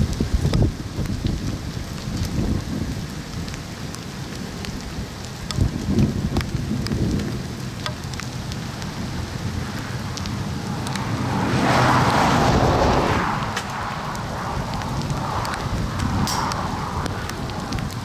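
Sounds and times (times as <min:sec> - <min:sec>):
raindrops tapping: 0:00.0 - 0:18.0
low thunder rumble: 0:04.4 - 0:18.0
broad rushing swell: 0:10.4 - 0:18.0.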